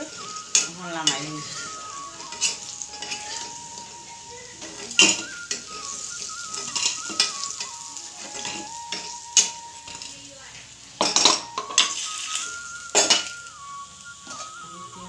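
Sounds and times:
metal spatula scraping a pan: 0.0 - 3.9, 4.6 - 10.2, 11.0 - 13.4
fritters sizzling in hot oil: 0.0 - 15.0.

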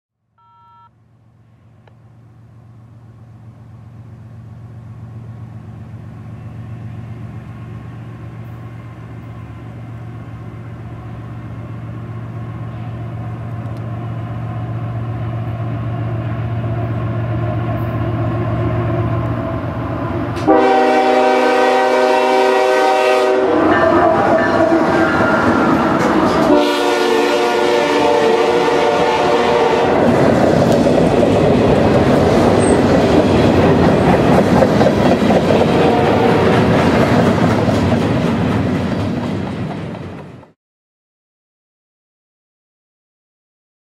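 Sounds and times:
diesel locomotive engine hum: 1.0 - 40.6
passing train rumble: 1.1 - 40.6
locomotive air horn: 20.4 - 25.2, 26.4 - 30.1, 35.7 - 36.5.

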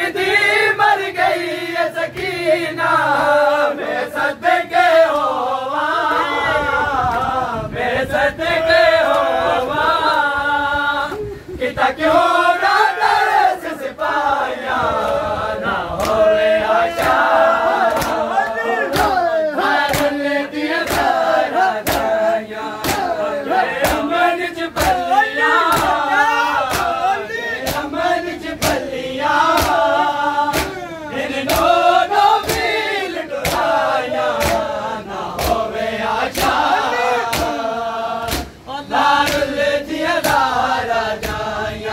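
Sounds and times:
men chanting a lament: 0.0 - 41.9
hand-on-chest strikes: 30.5 - 30.8.

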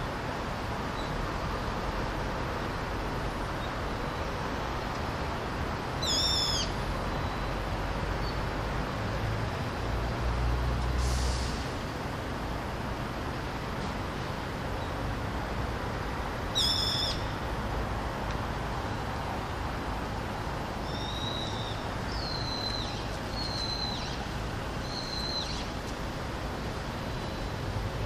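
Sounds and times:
bird calling high-pitched: 6.0 - 7.5, 16.5 - 17.4, 20.8 - 24.2, 24.8 - 25.8.

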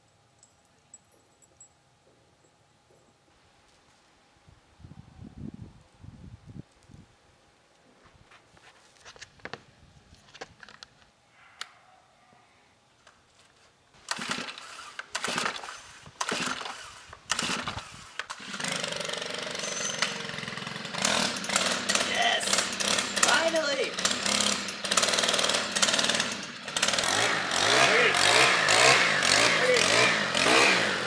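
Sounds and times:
string trimmer engine running: 14.0 - 31.0
starter cord pulls: 14.1 - 31.0.

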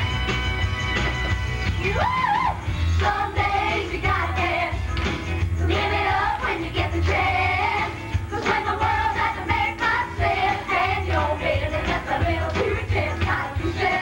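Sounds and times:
group of women singing: 2.9 - 4.9, 5.6 - 14.0.

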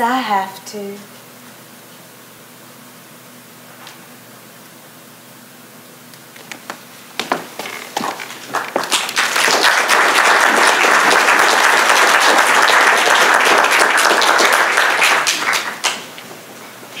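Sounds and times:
audience applauding: 7.2 - 16.2.

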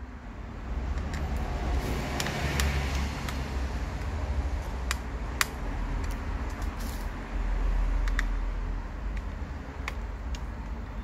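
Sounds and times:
sharp light metal clicks: 0.9 - 1.5, 2.1 - 7.2, 8.0 - 10.9.

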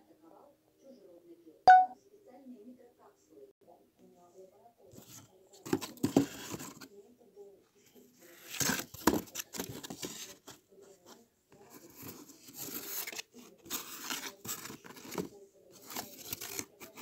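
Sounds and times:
cardboard scraping and rustling: 5.0 - 6.9, 8.4 - 10.6, 11.6 - 17.0.

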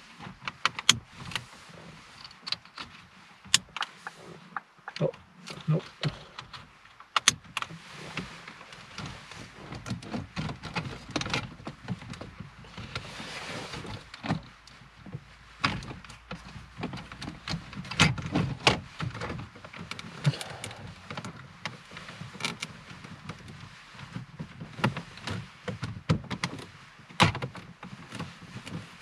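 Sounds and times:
low rustling: 18.9 - 24.1.

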